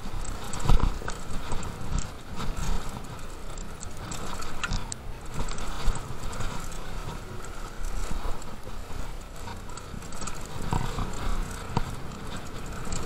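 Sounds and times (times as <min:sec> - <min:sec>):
bike tyres rumbling over dirt: 0:00.0 - 0:13.0.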